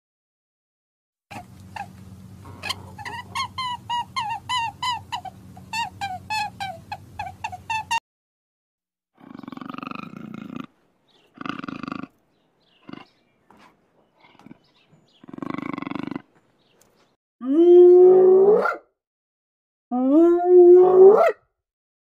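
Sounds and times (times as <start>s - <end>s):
large wild cat growling: 9.2s - 16.3s.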